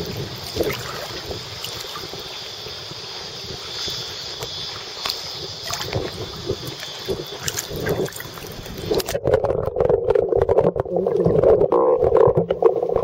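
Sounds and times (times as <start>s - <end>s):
water splashing from kicking feet: 0.0s - 2.3s, 4.4s - 9.4s
wind hiss on microphone: 0.0s - 9.6s.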